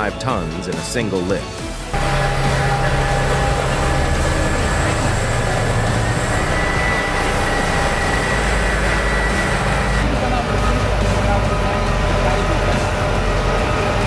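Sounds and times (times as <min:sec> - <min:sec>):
excavator diesel engines running: 0:01.8 - 0:14.0.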